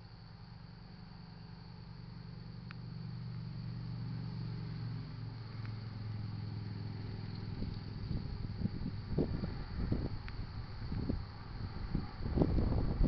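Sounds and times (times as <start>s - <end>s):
low engine rumble: 0.0s - 13.0s.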